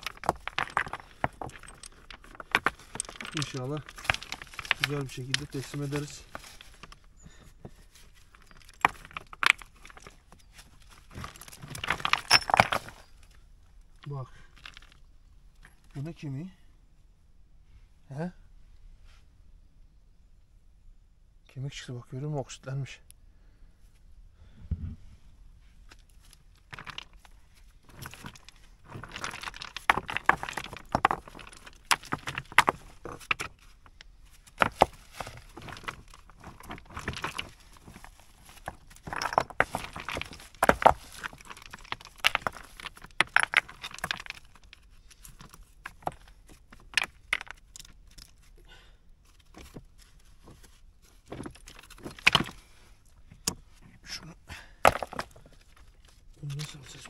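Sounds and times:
stones clinking and clattering: 0.0 - 16.3, 25.9 - 57.0.

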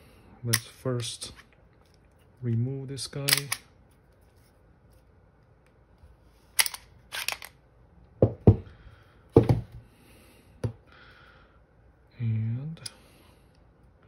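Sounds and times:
metallic pistol slide clicks: 3.3 - 3.6.

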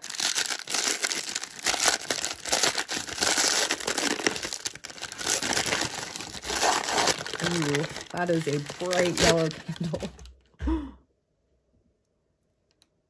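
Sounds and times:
paper crinkling and rustling: 0.0 - 10.3.

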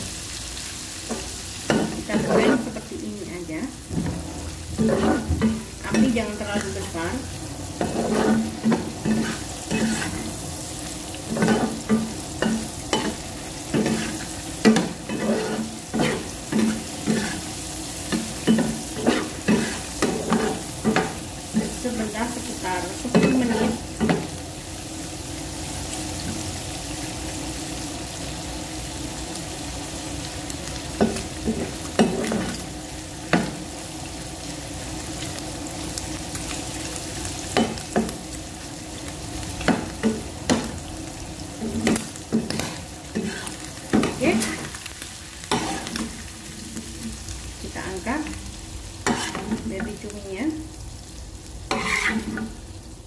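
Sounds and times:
squid sizzling in oil: 0.0 - 53.0
metal spatula scraping a pan: 1.7 - 2.9, 4.8 - 7.0, 7.8 - 10.4, 11.3 - 22.0, 23.0 - 24.3, 41.6 - 44.7, 45.5 - 47.2, 49.0 - 49.8, 51.7 - 52.5.

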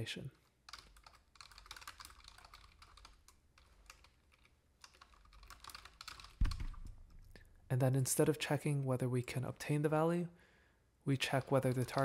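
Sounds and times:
computer keyboard key clicks: 0.7 - 7.0.

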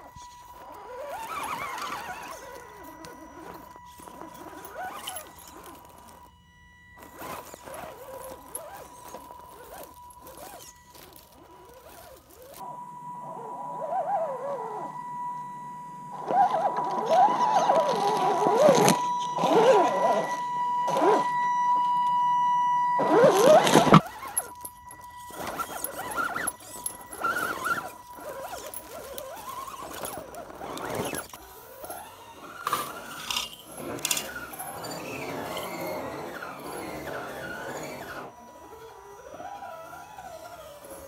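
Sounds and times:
drivetrain clicks and squeaks: 0.0 - 12.6, 16.1 - 22.1, 23.0 - 41.0
rc car motor and gears whining: 0.0 - 41.0
tyres crunching over stones: 0.1 - 6.4, 7.0 - 12.6, 23.1 - 38.3.

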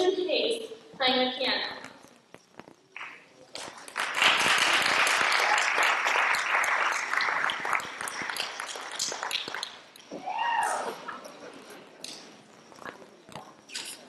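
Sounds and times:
audience applauding: 3.8 - 9.8.

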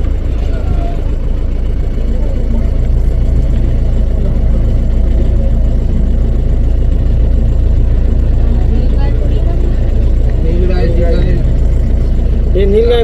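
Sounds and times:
vehicle engine low rumble: 0.0 - 13.0.

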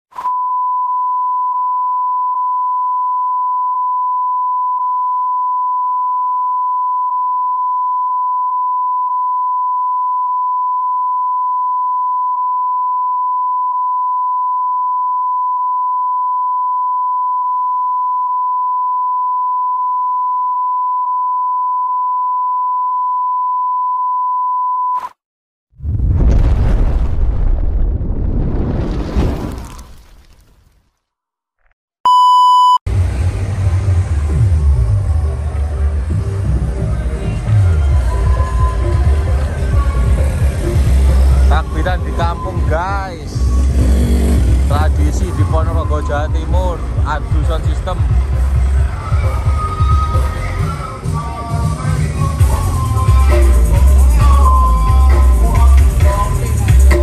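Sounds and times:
continuous electronic beep tone: 0.3 - 25.0, 32.1 - 32.8.

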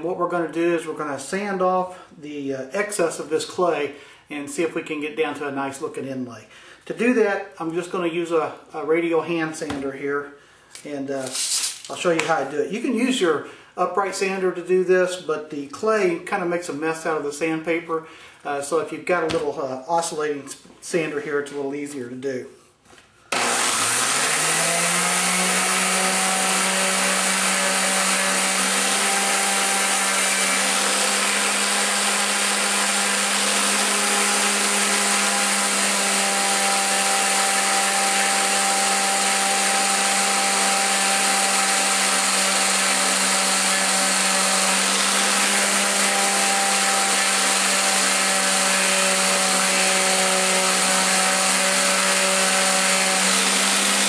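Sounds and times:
orbital sander running: 23.3 - 54.0.

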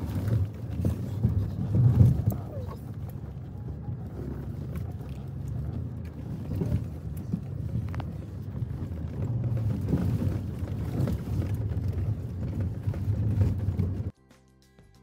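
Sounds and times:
vehicle engine rumbling: 0.0 - 14.1
knocks and rattles: 4.1 - 14.1.

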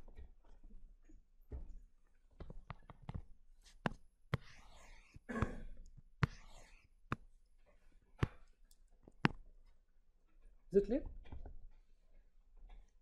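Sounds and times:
stylus tapping on tablet screen: 2.4 - 7.5, 8.2 - 9.6.

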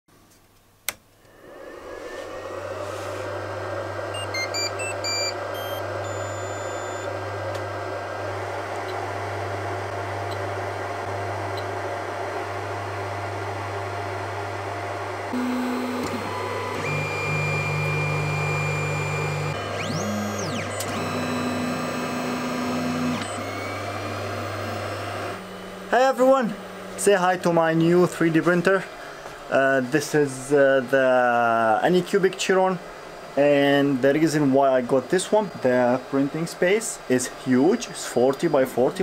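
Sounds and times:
cooling fans humming: 0.6 - 39.0
stepper motors whining: 1.3 - 7.1, 15.3 - 25.6
stepped beeps: 4.2 - 7.1.

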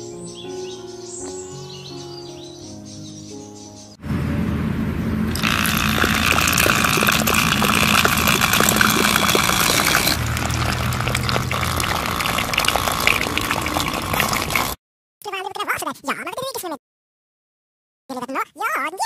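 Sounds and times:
small pump motor humming: 5.3 - 14.8
water splashing onto mud: 5.3 - 14.8.

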